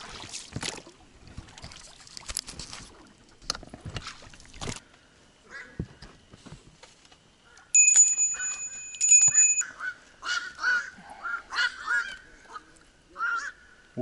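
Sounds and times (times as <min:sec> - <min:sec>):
small bell ringing: 0:07.8 - 0:09.7.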